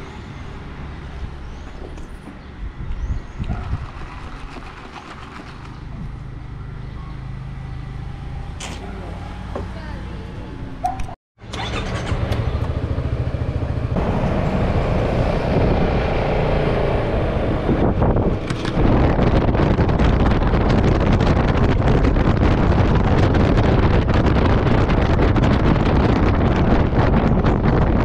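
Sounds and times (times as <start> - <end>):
wind buffeting microphone: 0.7 - 6.8, 11.6 - 28.0
scooter engine running: 11.4 - 15.3.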